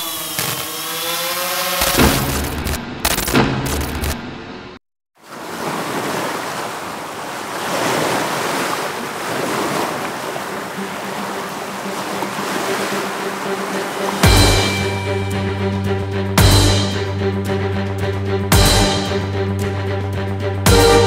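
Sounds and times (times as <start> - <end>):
wind: 0.0 - 20.7
waves breaking: 5.2 - 15.3.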